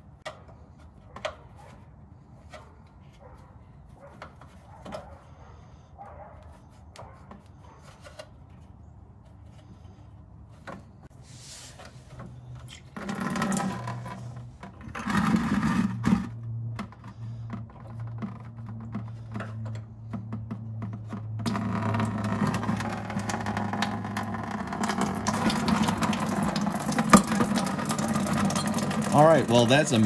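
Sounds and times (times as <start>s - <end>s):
coolant gushing into plastic bucket: 12.7s - 19.4s, 20.6s - 30.0s.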